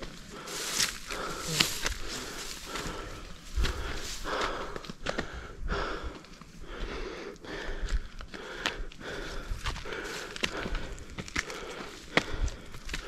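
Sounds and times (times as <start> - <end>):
footsteps: 0.0 - 7.0
person breathing hard: 0.0 - 13.0.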